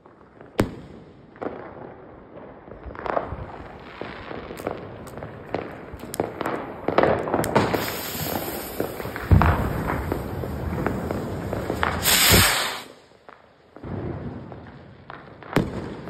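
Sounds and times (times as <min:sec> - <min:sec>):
fireworks popping and banging: 0:00.0 - 0:16.0
rocket fuse hissing: 0:07.5 - 0:13.1.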